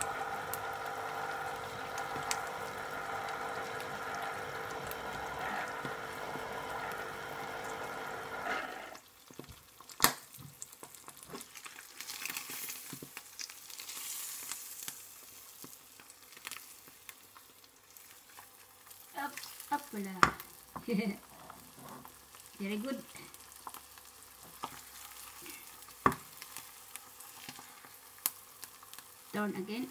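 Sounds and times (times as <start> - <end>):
electric juicer motor running: 0.0 - 9.0
egg sizzling in a pan: 0.0 - 29.9.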